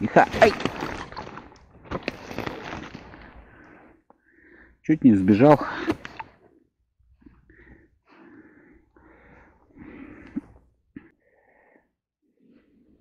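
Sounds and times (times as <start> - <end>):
man breathing: 3.1 - 4.8, 7.2 - 13.0.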